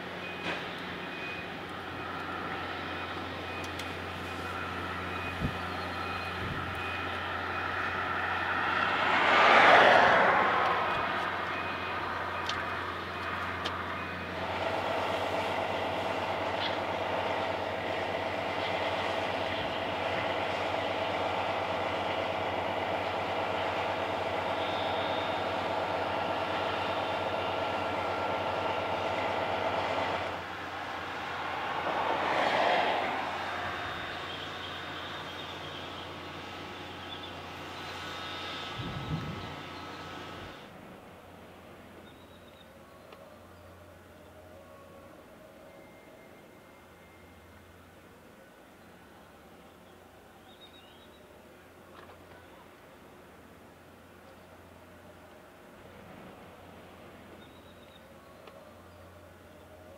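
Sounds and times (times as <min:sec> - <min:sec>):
machinery drone: 0:00.0 - 0:48.0
steady engine hum: 0:00.0 - 0:59.9
vehicle passing: 0:07.2 - 0:13.7, 0:28.9 - 0:35.2.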